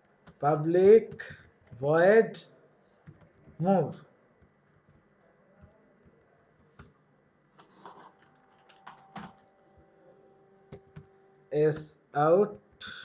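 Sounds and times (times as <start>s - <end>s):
computer keyboard keystrokes: 7.6s - 9.5s.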